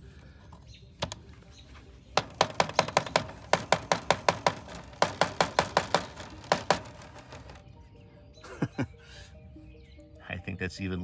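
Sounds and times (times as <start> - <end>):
gear clicking against door strip: 2.2 - 7.6.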